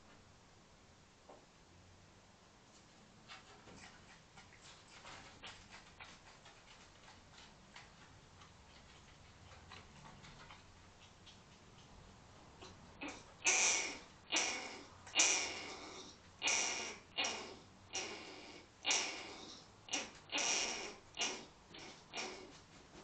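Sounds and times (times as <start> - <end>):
harsh breathy hissing calls: 13.0 - 22.6.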